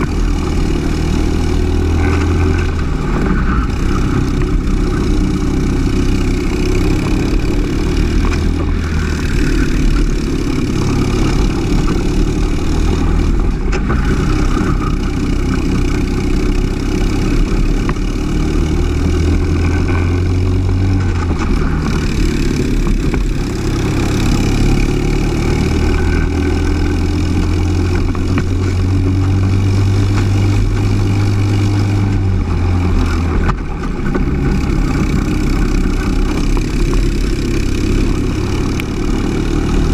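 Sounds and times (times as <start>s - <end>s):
kart engine revving: 0.0s - 39.9s.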